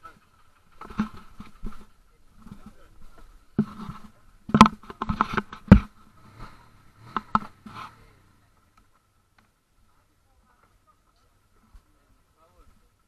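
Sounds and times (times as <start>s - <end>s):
camera handling knocks: 4.5s - 5.9s.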